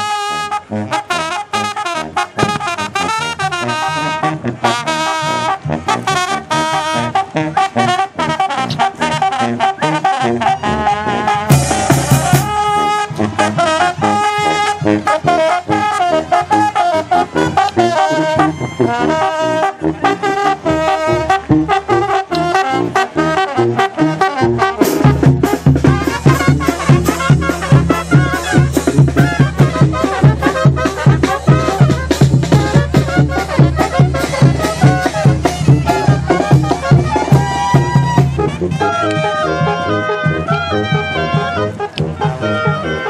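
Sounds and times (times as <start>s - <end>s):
brass band playing: 0.0s - 43.0s
bass drum: 11.5s - 12.9s, 24.8s - 38.8s.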